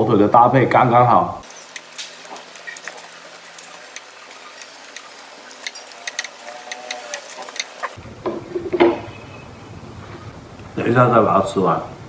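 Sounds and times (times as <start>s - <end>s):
chewing: 1.4s - 8.0s.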